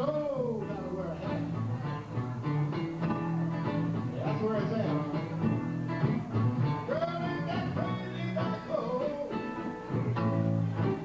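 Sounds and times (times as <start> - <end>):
blues rock on electric guitars: 0.0 - 11.0.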